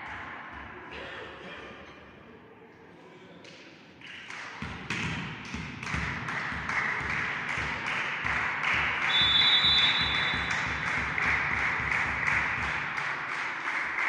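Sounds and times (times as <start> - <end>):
crowd clapping in rhythm: 3.4 - 14.0
referee's whistle: 9.0 - 10.6.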